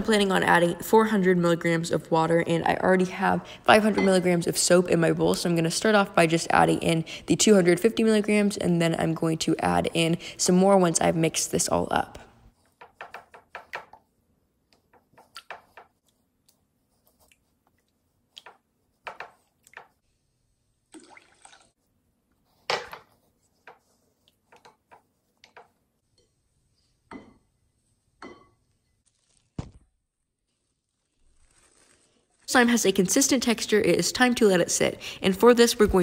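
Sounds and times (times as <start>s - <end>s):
spatula stirring liquid in a bowl: 12.5s - 20.2s, 21.7s - 29.0s.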